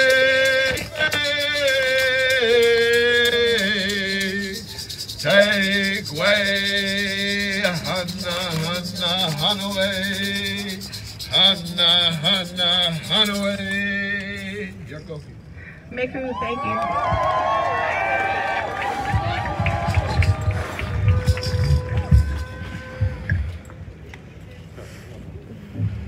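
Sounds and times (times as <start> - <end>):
fast shaking rattle: 0.0 - 15.6, 19.0 - 23.0.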